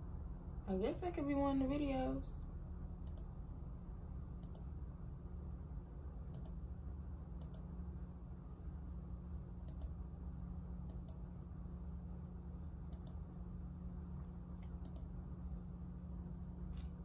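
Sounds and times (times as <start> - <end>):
low hum: 0.0 - 17.0
computer mouse clicking: 3.0 - 3.3, 4.4 - 4.7, 6.3 - 6.6, 7.4 - 7.7, 9.6 - 10.0, 10.8 - 11.2, 12.9 - 13.2, 14.7 - 15.1.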